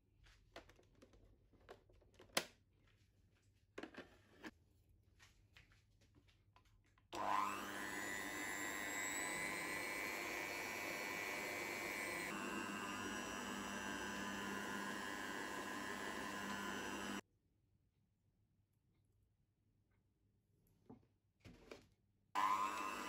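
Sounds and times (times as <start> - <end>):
mixer motor whining: 7.2 - 17.2, 22.4 - 23.0.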